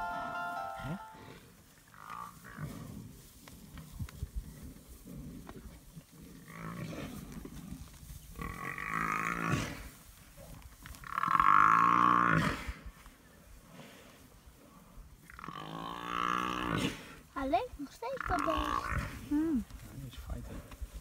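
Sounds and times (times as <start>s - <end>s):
buffalo bellowing: 15.2s - 17.1s, 18.1s - 19.3s.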